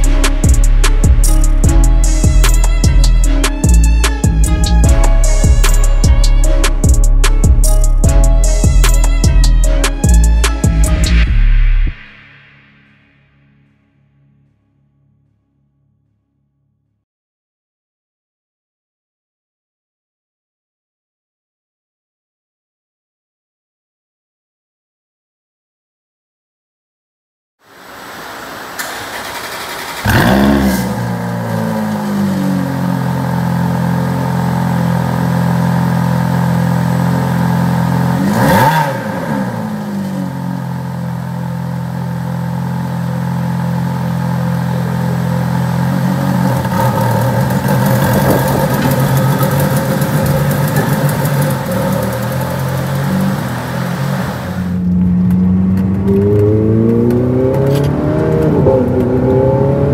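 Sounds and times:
car engine starting and idling: 28.1 - 59.9.

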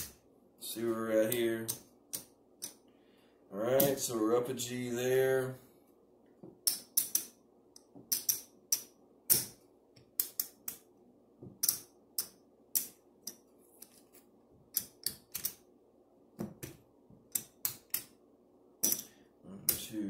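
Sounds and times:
casino chips clacking: 6.6 - 7.4, 8.1 - 10.8, 18.8 - 19.1.

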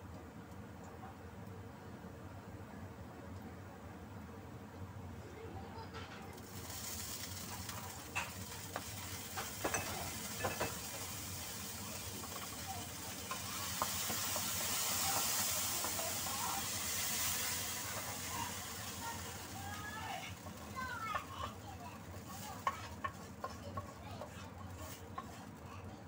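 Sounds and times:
garlic sizzling in hot oil: 6.3 - 26.0.

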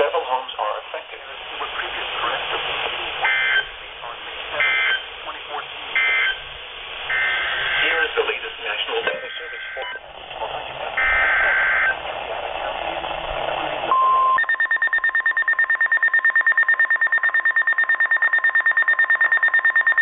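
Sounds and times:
buzzy digital header burst: 1.7 - 12.0
rapid pulsing alarm beeps: 3.2 - 3.8, 4.6 - 5.1, 6.0 - 6.5, 7.1 - 8.1, 9.2 - 10.0, 11.0 - 12.0, 13.9 - 20.0
steady alert tone: 11.0 - 12.0.

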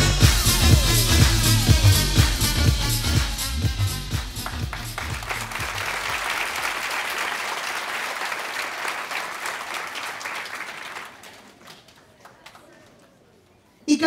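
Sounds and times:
dance music: 0.0 - 6.7
audience applauding: 4.1 - 13.0.

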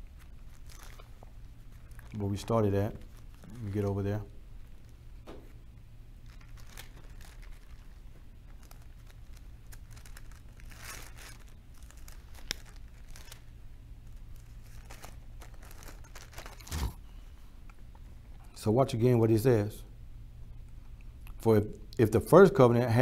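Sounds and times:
faint low hum: 0.0 - 23.0
paper pages rustling: 6.3 - 13.5, 14.3 - 17.0.

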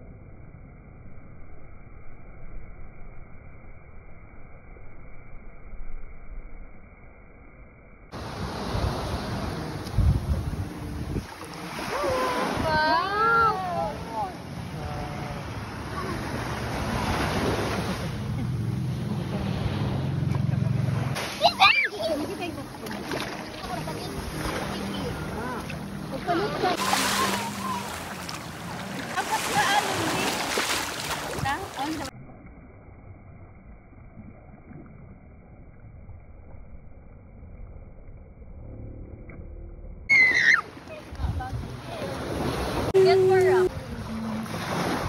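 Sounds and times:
wind buffeting microphone: 8.2 - 14.1, 41.0 - 45.0
small waves washing onto shore: 8.2 - 32.1, 40.4 - 45.0.

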